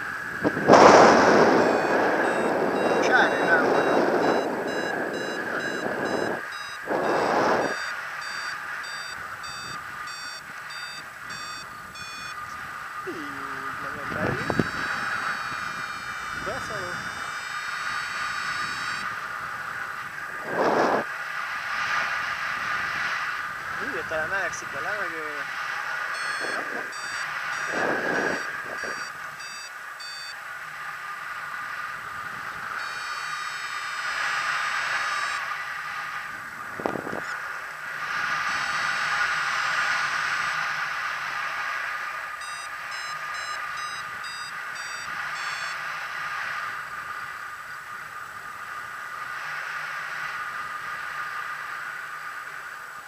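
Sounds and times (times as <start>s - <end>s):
wind rushing over microphone: 0.0s - 29.5s, 31.5s - 33.0s, 34.0s - 41.8s
variometer beeping: 0.5s - 19.6s, 23.8s - 30.4s, 32.1s - 35.5s, 42.3s - 45.8s.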